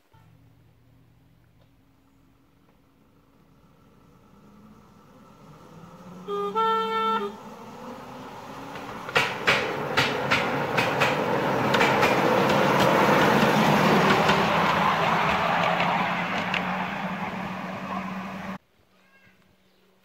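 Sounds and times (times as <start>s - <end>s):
train whistle: 6.1s - 7.5s
train wheels clicking over rail joints: 8.4s - 18.2s.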